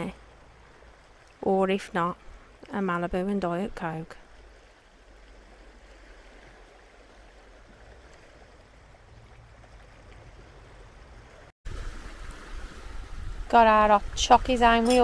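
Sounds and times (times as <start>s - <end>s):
small waves lapping over rocks: 0.0s - 15.0s
low wind rumble: 4.2s - 15.0s.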